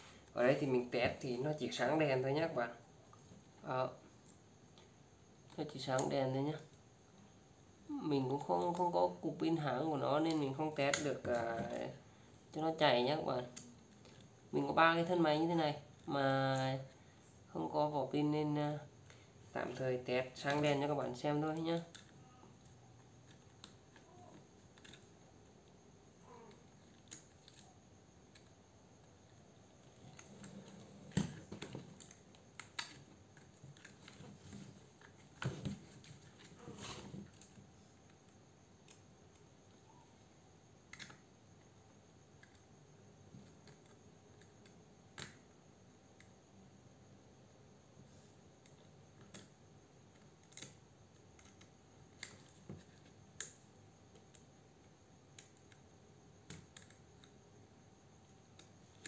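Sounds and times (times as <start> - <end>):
small plastic clicks and taps: 40.9 - 41.2, 43.3 - 45.5, 55.3 - 57.4.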